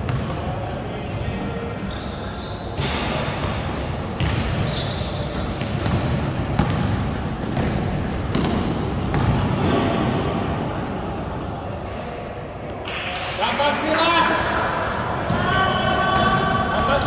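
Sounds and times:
basketball bouncing: 0.0s - 0.3s, 4.2s - 4.7s, 5.4s - 9.8s
sneakers squeaking on court: 1.8s - 9.9s, 11.5s - 12.0s.

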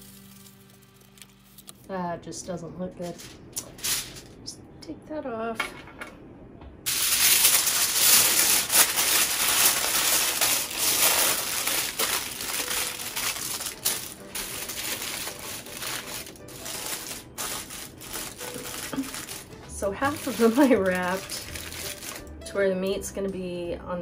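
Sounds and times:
aluminium foil crinkling: 0.0s - 1.9s, 3.0s - 4.3s, 6.9s - 22.3s.

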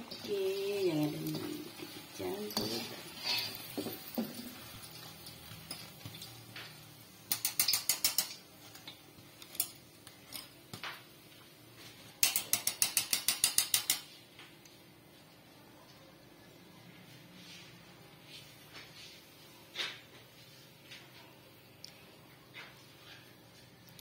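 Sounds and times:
strainer and fork clicking on wok: 7.3s - 10.5s, 12.2s - 14.1s.

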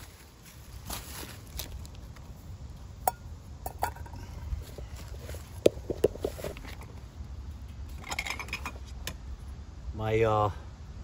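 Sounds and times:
movement over dry leaves: 0.0s - 2.9s, 4.1s - 8.1s
steady low rumble: 0.0s - 11.0s.

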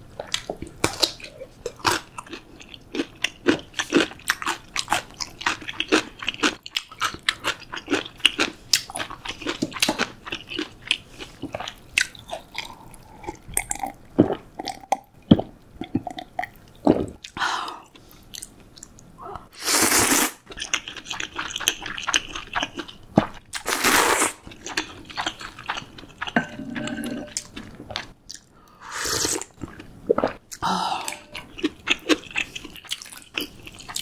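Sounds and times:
chewing: 20.5s - 23.4s, 24.5s - 28.5s, 29.4s - 34.0s.

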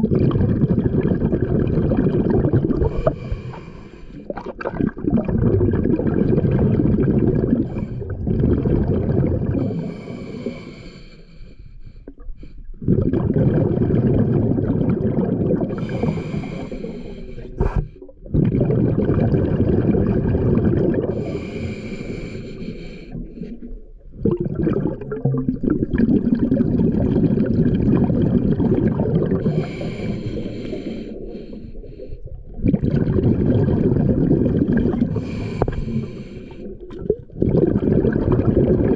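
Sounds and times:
diver breathing through regulator: 2.8s - 4.3s, 9.5s - 12.7s, 15.7s - 18.2s, 21.1s - 23.7s, 29.3s - 32.4s, 35.0s - 36.9s.

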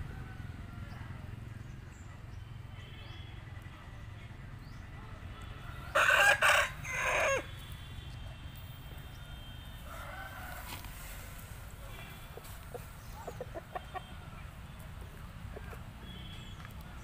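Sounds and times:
rooster crowing: 5.7s - 7.5s, 9.8s - 11.2s.

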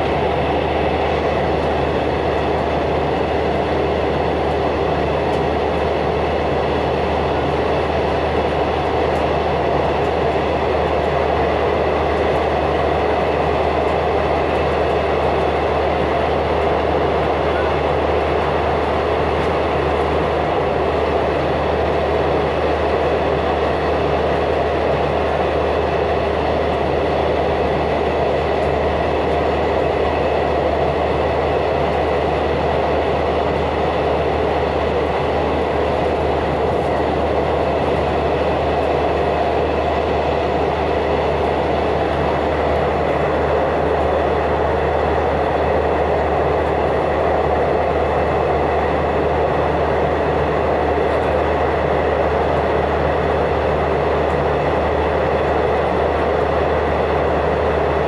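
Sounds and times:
constant low hum: 0.0s - 58.0s
passenger train rumble inside carriage: 0.0s - 58.0s.

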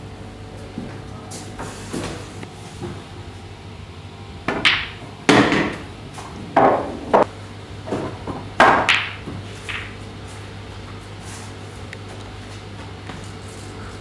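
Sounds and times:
cue striking ball: 4.4s - 10.0s
pool balls clacking: 4.4s - 10.1s.

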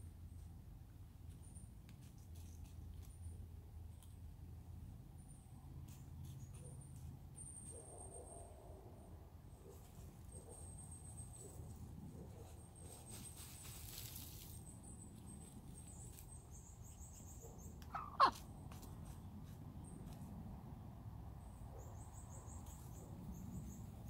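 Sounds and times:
hens dust bathing rustle: 12.4s - 14.7s.

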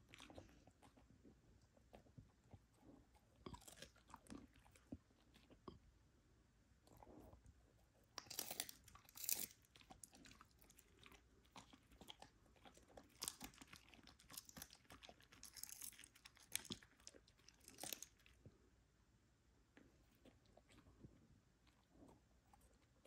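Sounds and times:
dog chewing and crunching: 0.0s - 5.7s, 6.8s - 18.5s.

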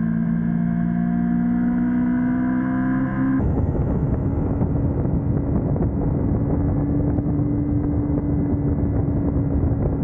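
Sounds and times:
motorcycle engine running: 0.0s - 10.0s
wind rush on microphone: 3.4s - 10.0s.

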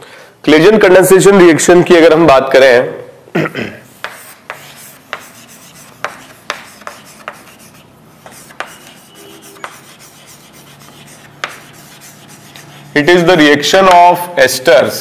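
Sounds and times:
pen scratching while writing: 3.9s - 12.9s
pen tapping on surface: 6.0s - 7.4s, 11.4s - 11.6s.

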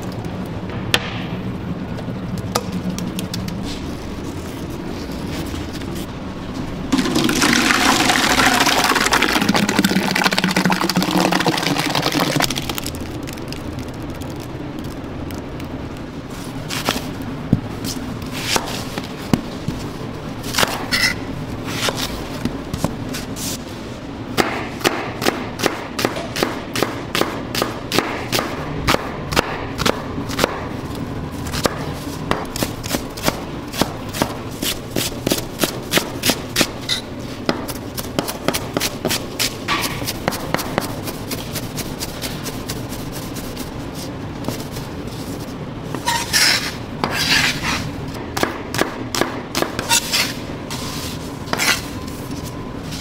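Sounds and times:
machine hum: 0.0s - 18.4s
puree gushing into metal tub: 7.0s - 12.9s.

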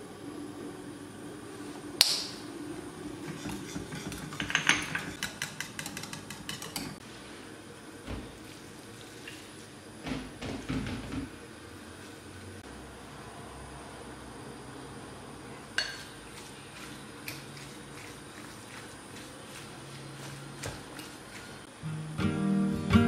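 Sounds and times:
whisk clicking against saucepan: 3.2s - 7.0s.

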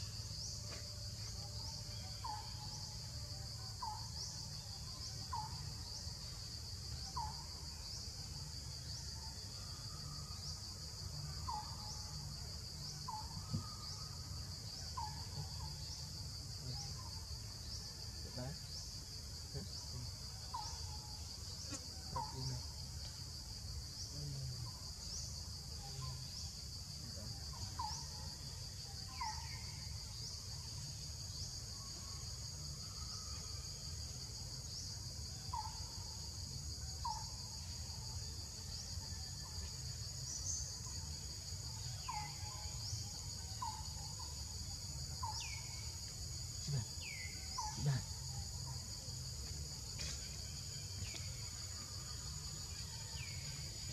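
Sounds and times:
high-pitched insect trilling: 46.5s - 48.8s.

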